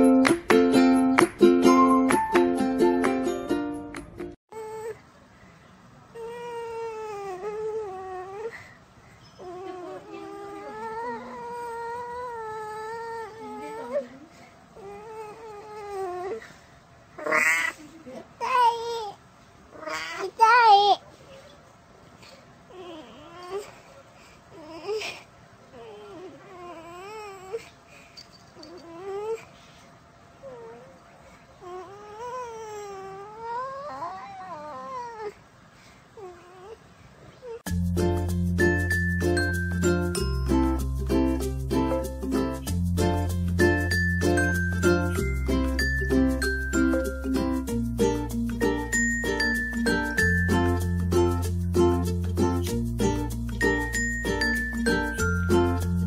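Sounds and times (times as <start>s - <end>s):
cat yowling: 17.2s - 17.8s.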